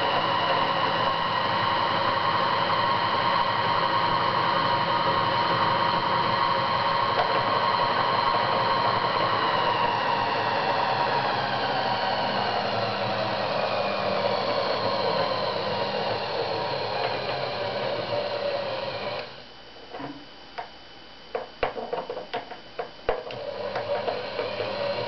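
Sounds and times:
yarn winder motor whirring: 0.0 - 19.5, 21.7 - 25.0
sharp clicks and knocks: 19.9 - 24.6.

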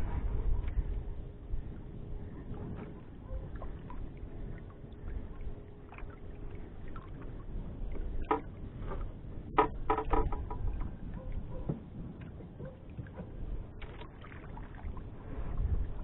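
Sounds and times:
low steady rumble: 0.0 - 16.0
water lapping against boat hull: 0.2 - 16.0
knocks on boat: 9.5 - 10.6.

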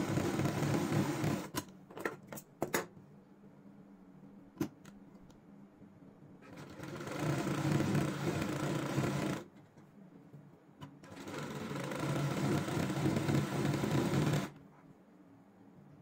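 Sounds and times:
sewing machine stitching: 0.0 - 1.6, 6.4 - 9.5, 11.0 - 14.6.

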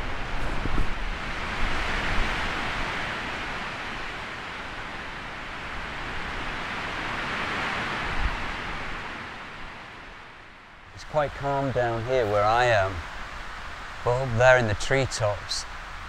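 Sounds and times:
storm wind rushing through treetops: 0.0 - 16.0.

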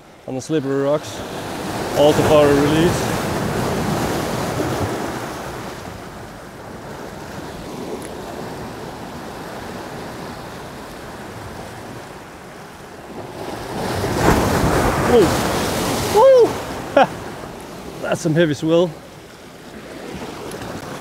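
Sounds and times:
surf breaking on boulders: 1.0 - 6.0, 13.1 - 18.9.

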